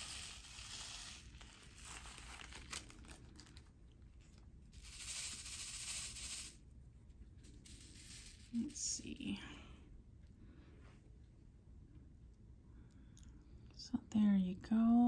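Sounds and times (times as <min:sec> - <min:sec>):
plastic beads rattling in tray: 0:00.0 - 0:03.5, 0:04.8 - 0:06.6, 0:07.4 - 0:09.1
plastic bag crinkling: 0:00.0 - 0:04.4.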